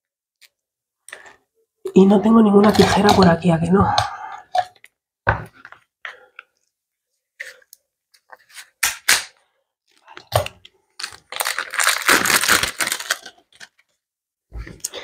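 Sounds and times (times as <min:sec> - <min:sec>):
plastic wrapper crinkling: 0:09.9 - 0:14.0.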